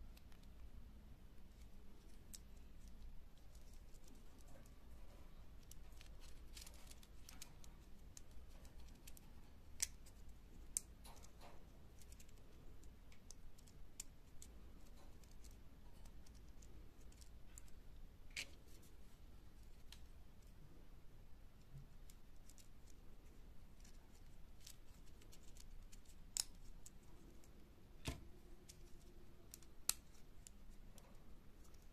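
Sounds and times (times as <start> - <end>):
small plastic parts clicking: 5.5 - 18.6, 23.8 - 31.9.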